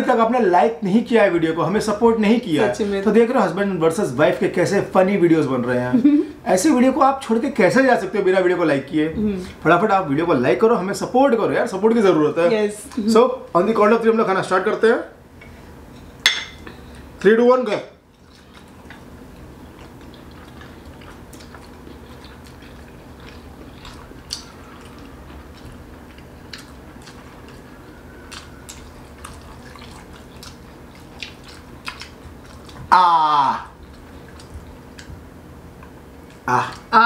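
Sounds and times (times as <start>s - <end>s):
low room hum: 0.0s - 37.0s
mouth clicks while chewing: 28.3s - 32.9s, 33.8s - 35.2s.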